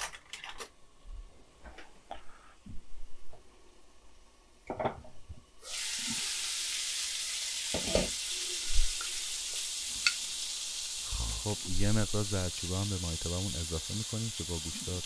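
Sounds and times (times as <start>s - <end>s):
meat sizzling in a pan: 5.6s - 15.0s.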